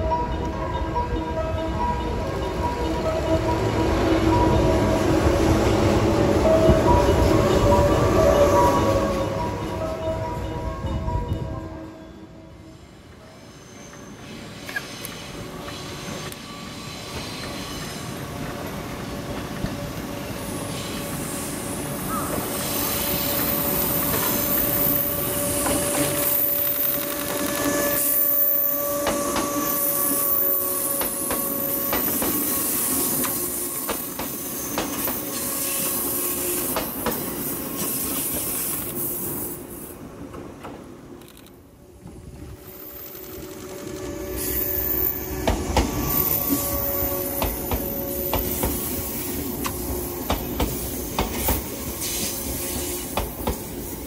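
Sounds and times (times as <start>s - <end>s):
steady train whine: 0.0s - 54.0s
train wheels clacking: 22.2s - 39.0s, 42.8s - 54.0s.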